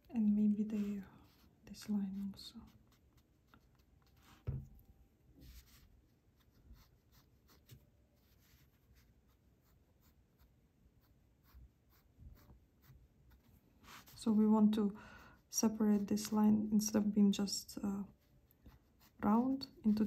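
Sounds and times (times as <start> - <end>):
pencil scratching on paper: 0.4 - 4.5, 5.4 - 14.2, 18.0 - 20.0.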